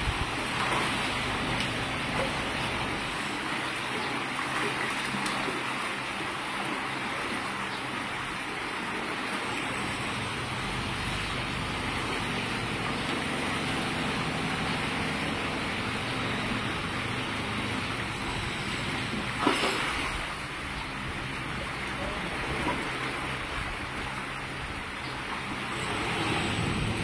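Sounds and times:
fish splashing at water surface: 0:12.3 - 0:27.0.

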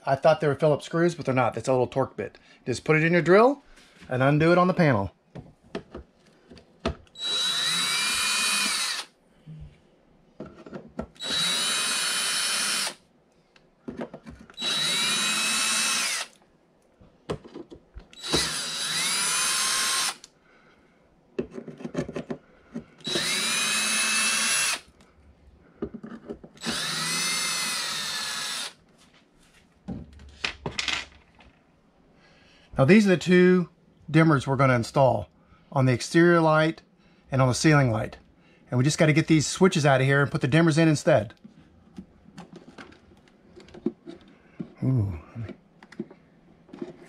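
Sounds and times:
cordless drill spinning: 0:07.1 - 0:09.1, 0:11.2 - 0:13.0, 0:14.5 - 0:16.4, 0:18.1 - 0:20.3, 0:23.0 - 0:25.0, 0:26.6 - 0:28.8.

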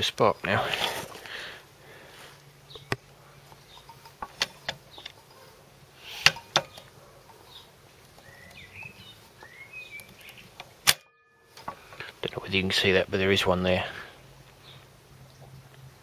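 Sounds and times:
bird chirps: 0:02.6 - 0:10.6
sharp clicks and knocks: 0:03.8 - 0:05.2.

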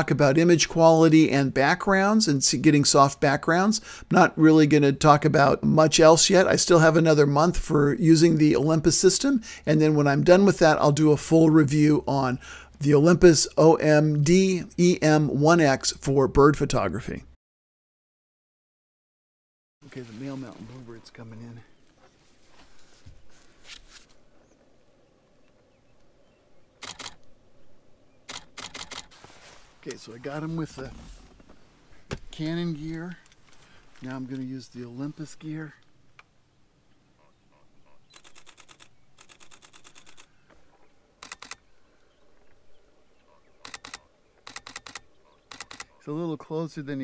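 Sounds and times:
camera shutter bursts: 0:26.8 - 0:27.2, 0:28.3 - 0:29.2, 0:38.1 - 0:40.3, 0:41.2 - 0:41.6, 0:43.6 - 0:46.0.

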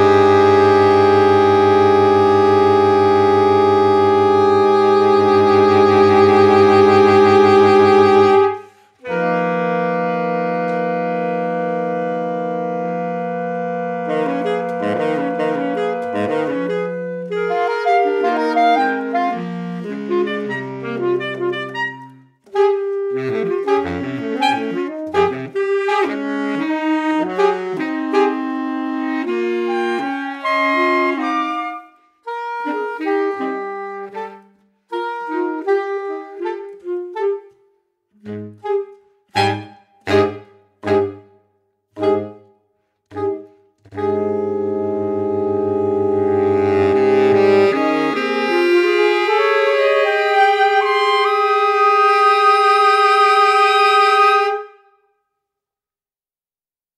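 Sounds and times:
saxophone quartet playing: 0:00.0 - 0:41.4, 0:42.0 - 0:42.5, 0:43.1 - 0:55.0.

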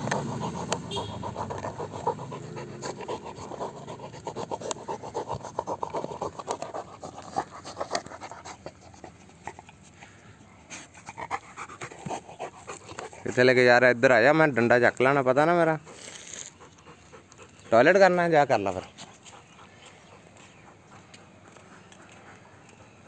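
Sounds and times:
dog panting: 0:00.0 - 0:13.9, 0:15.3 - 0:23.0
clicks and scrapes: 0:04.4 - 0:09.8.

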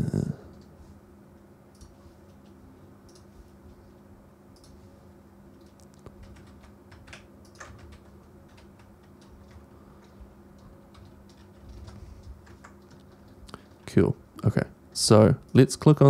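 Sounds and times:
faint low hum: 0:00.0 - 0:16.0
keyboard keystrokes: 0:05.6 - 0:13.4.

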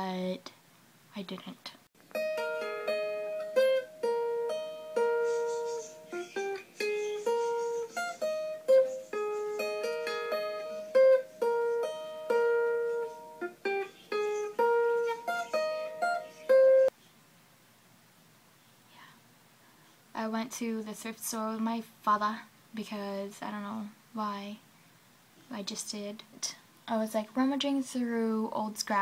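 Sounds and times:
fingerstyle acoustic guitar: 0:02.1 - 0:16.9.

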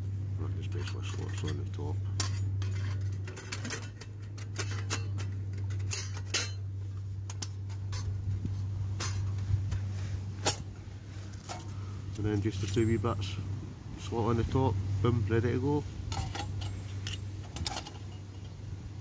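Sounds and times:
steady low hum: 0:00.0 - 0:19.0
metal plates clinking and scraping: 0:00.6 - 0:06.7, 0:07.3 - 0:08.2, 0:09.0 - 0:09.8, 0:10.4 - 0:10.7, 0:16.1 - 0:18.6.

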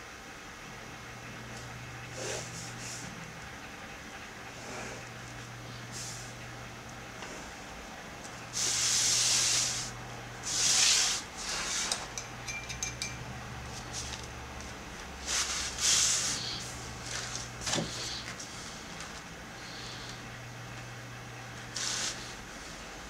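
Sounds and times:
steady low hum: 0:00.0 - 0:23.0
paper sliding and rustling: 0:15.2 - 0:18.4.

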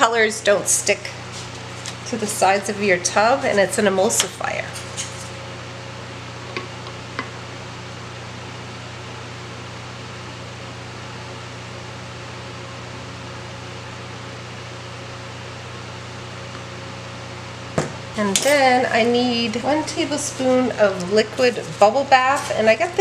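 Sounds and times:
fan running: 0:00.0 - 0:23.0.

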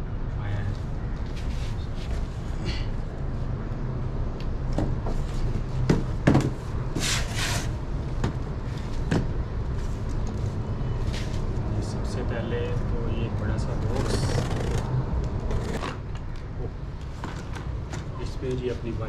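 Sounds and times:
cardboard rustling scrape: 0:06.9 - 0:07.8.

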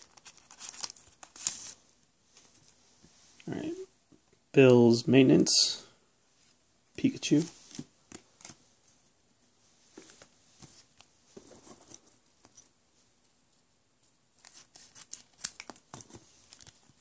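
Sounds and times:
wrapper crinkling: 0:00.0 - 0:01.8.

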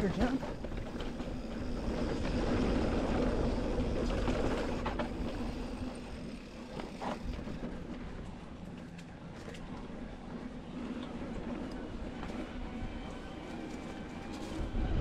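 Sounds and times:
tyres rolling over dirt and stones: 0:00.0 - 0:10.1
bike rattling: 0:00.0 - 0:12.5, 0:13.2 - 0:15.0
low rumble of wind: 0:00.0 - 0:15.0.

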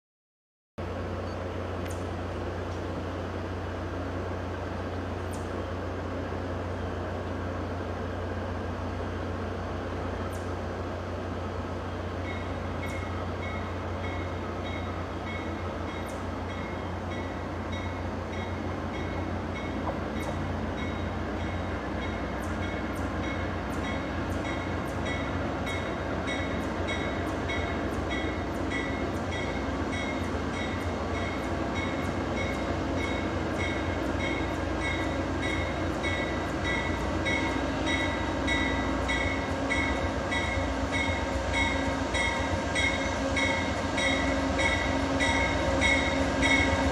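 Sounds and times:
diesel locomotive engine rumble: 0:00.8 - 0:46.9
train bell ringing: 0:12.2 - 0:46.9.

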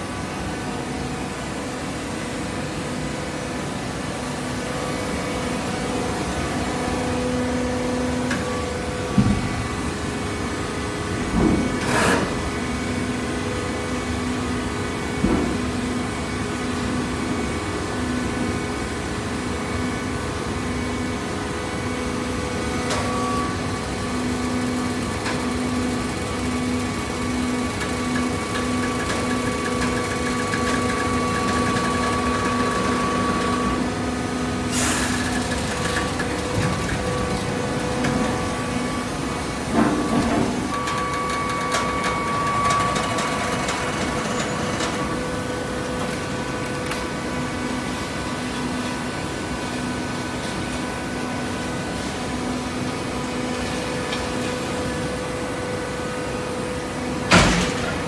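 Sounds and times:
machine whine: 0:19.4 - 0:58.0.

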